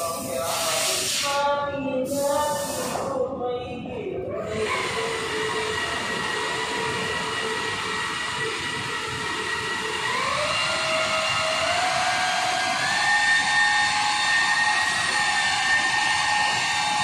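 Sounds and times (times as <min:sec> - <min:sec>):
car polisher motor whine: 0:04.4 - 0:17.0.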